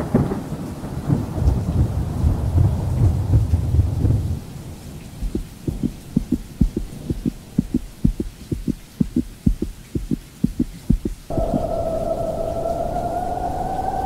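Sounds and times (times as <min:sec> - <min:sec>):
heartbeat thumps: 0:05.2 - 0:11.3
steady high tone: 0:11.3 - 0:14.0.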